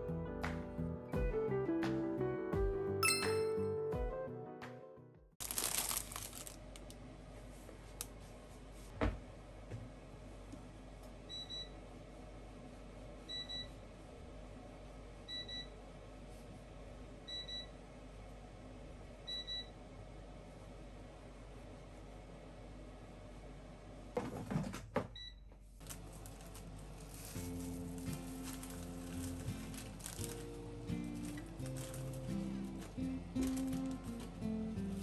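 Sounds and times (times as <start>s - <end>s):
plastic bag crinkling: 5.4s - 7.0s, 25.8s - 35.0s.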